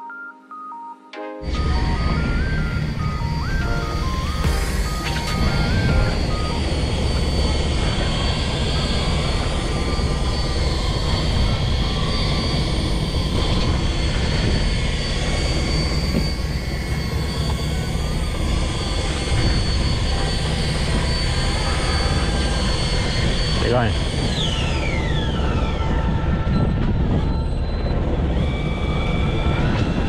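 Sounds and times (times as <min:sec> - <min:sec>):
boat engine droning: 0:01.4 - 0:30.0.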